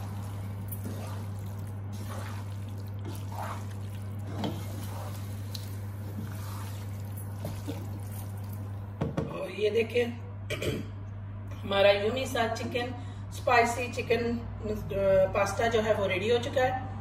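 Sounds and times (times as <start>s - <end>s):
spatula scraping pan: 0.0s - 8.0s
spatula stirring pasta in sauce: 0.0s - 8.7s
steady low hum: 0.0s - 16.1s.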